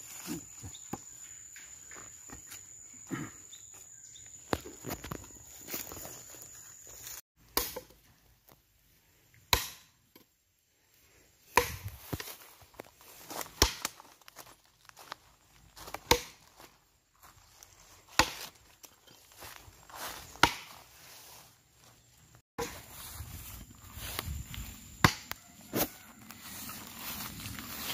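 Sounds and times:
adze chopping into log: 9.5s - 9.9s, 16.0s - 16.4s, 20.4s - 20.7s, 25.0s - 25.4s.

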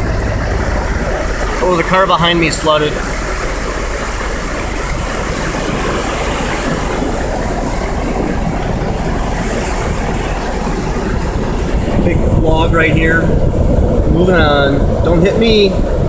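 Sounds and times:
flood water rushing: 0.0s - 16.0s
truck engine idling: 0.0s - 16.0s.

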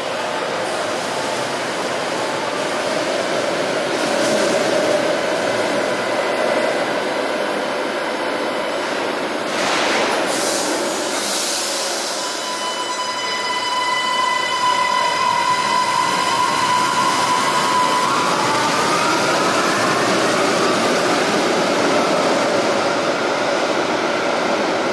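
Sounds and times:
loud hiss burst: 9.5s - 12.2s.

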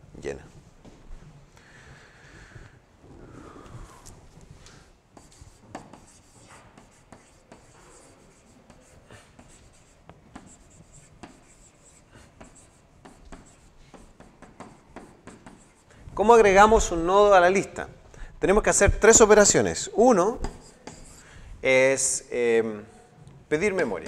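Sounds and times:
stylus tapping and scratching screen: 5.2s - 17.4s, 20.0s - 21.2s.

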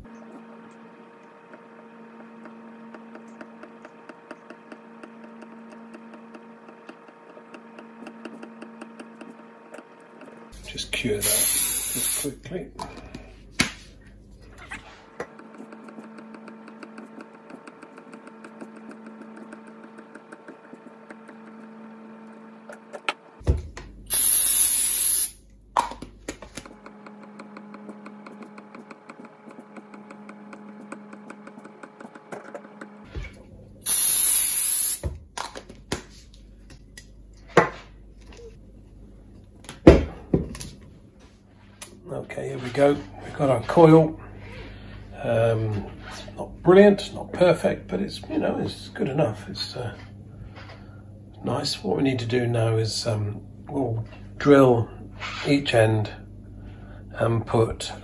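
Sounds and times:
aerosol can hissing: 11.2s - 12.3s, 24.1s - 25.4s, 33.8s - 35.0s.

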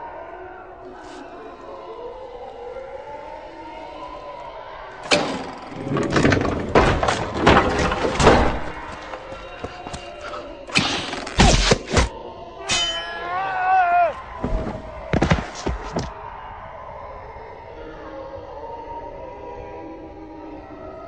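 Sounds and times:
banging on wooden door: 5.1s - 9.0s.

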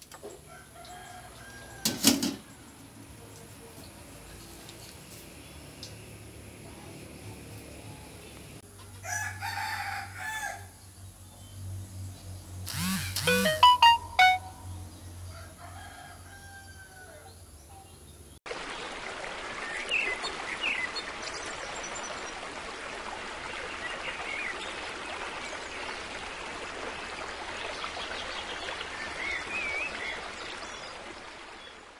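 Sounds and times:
rooster crowing: 0.4s - 2.3s, 9.0s - 10.8s, 15.3s - 17.4s
running water rushing: 18.5s - 31.9s.

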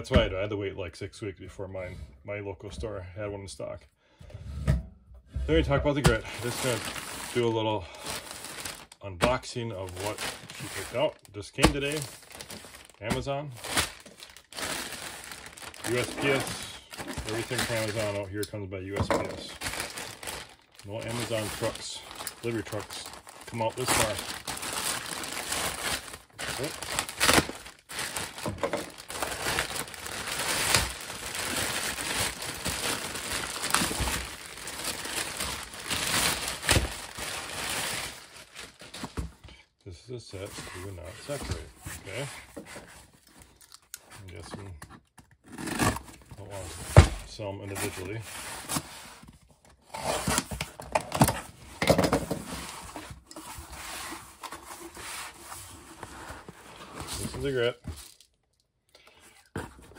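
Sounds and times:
packaging crinkling and rustling: 5.9s - 39.6s, 40.4s - 58.7s.

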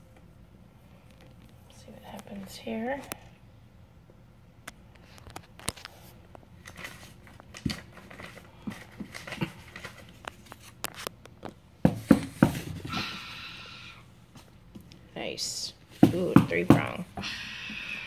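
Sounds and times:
paper rustling and tapping: 6.6s - 12.9s.

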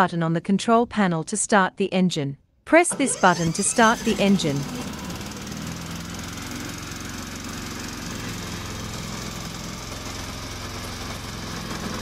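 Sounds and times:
mower engine running: 2.9s - 12.0s.

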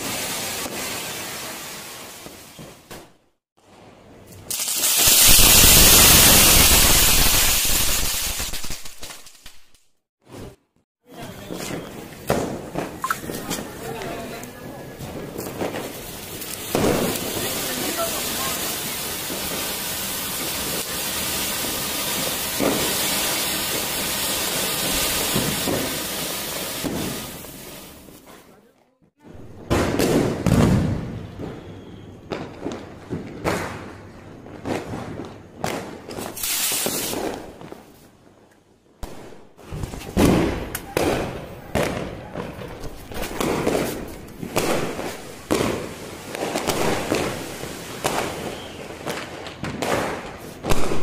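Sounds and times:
firework crackling: 0.0s - 28.6s, 29.4s - 38.2s, 39.0s - 51.0s
firework sparks hissing: 4.4s - 9.8s, 11.2s - 28.3s, 36.0s - 38.0s, 42.6s - 51.0s.

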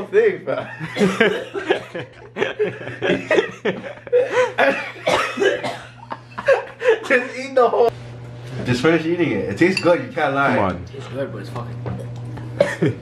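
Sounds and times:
laughter: 0.6s - 7.4s, 12.6s - 13.0s
person coughing: 0.9s - 1.6s, 3.3s - 7.2s, 12.6s - 13.0s.

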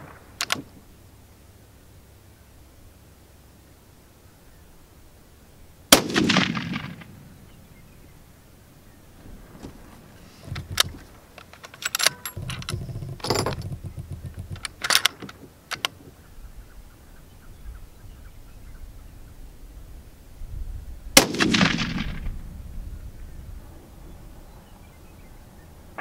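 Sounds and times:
rifle handling clicks and clacks: 0.4s - 0.7s, 9.6s - 16.1s
rifle shot ringing out: 5.9s - 7.3s, 21.2s - 22.4s.

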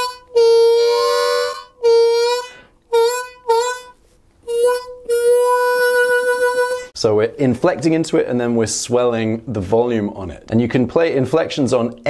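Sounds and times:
blues harmonica lick: 0.0s - 7.0s.

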